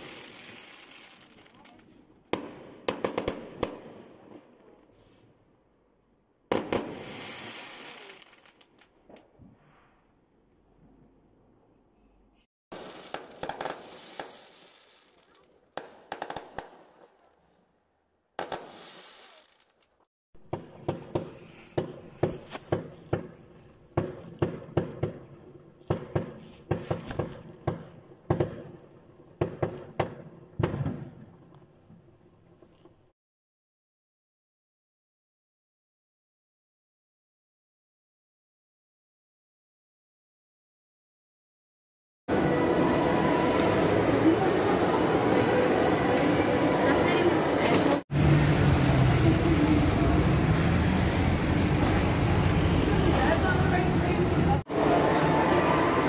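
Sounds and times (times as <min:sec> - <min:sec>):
firework hiss: 0:00.0 - 0:01.6, 0:06.6 - 0:08.6, 0:12.7 - 0:15.4, 0:18.4 - 0:19.8
firework pops: 0:00.0 - 0:04.4, 0:06.5 - 0:09.4, 0:12.7 - 0:17.0, 0:18.4 - 0:19.7, 0:20.4 - 0:31.6
fireworks bangs: 0:00.0 - 0:04.8, 0:06.5 - 0:09.8, 0:12.7 - 0:17.3, 0:18.4 - 0:19.8, 0:20.4 - 0:31.5.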